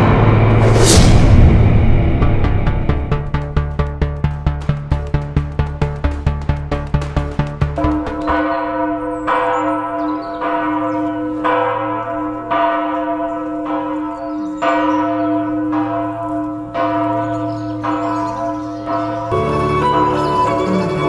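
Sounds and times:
low hum: 0:00.0 - 0:07.2
church bell tolling: 0:07.8 - 0:21.0.

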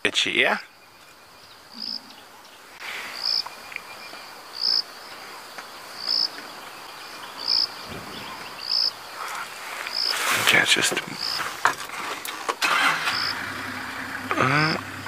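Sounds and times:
insect trilling: 0:00.7 - 0:05.1, 0:06.0 - 0:11.6.

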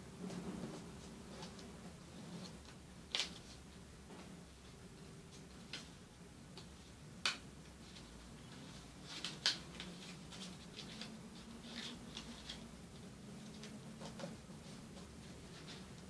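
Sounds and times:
paper rustling and crackling: 0:07.2 - 0:16.0.

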